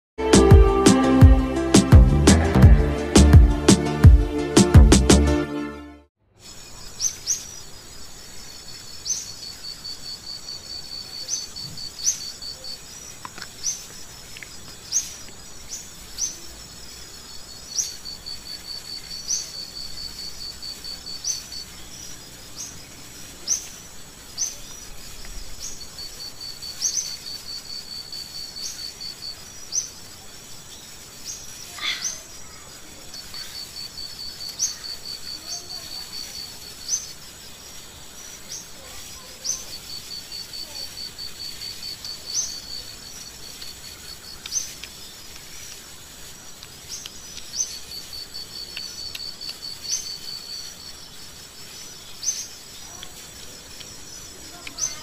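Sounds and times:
steady high insect whine: 0:06.2 - 0:55.0
short sharp cricket chirps: 0:06.3 - 0:55.0
high pulsing insect trill: 0:06.4 - 0:55.0.

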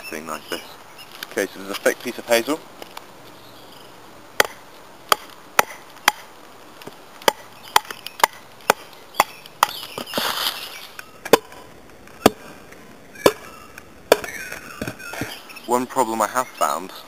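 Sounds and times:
scratchy wood splitting: 0:04.4 - 0:15.4.

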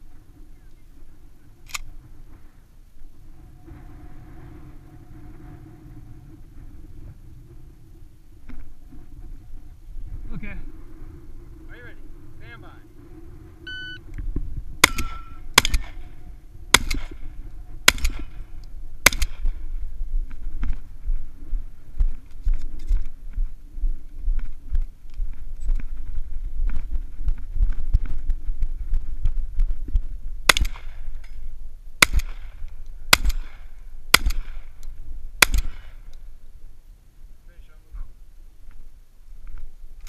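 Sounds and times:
shotgun shots with echo: 0:14.8 - 0:19.6, 0:30.5 - 0:31.0, 0:32.0 - 0:34.7, 0:35.4 - 0:36.0.

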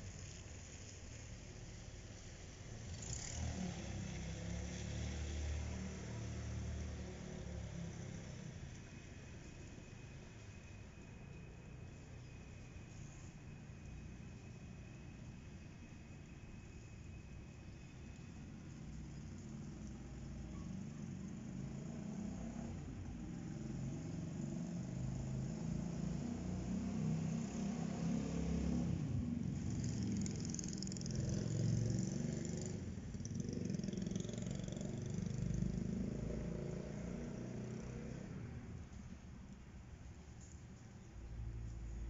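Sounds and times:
passing vehicle rumble: 0:01.7 - 0:10.6, 0:17.6 - 0:39.6.

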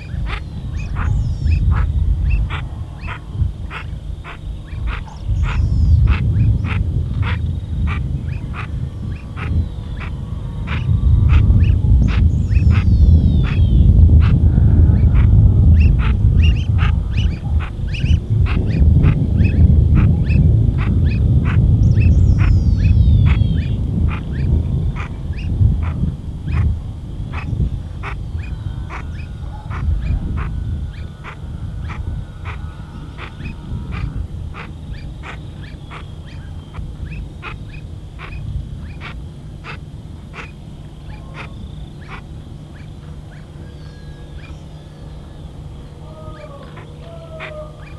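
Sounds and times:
faint chirps: 0:00.0 - 0:47.9
steady low rumble: 0:00.0 - 0:47.9
sharp clicking calls: 0:27.3 - 0:45.4.

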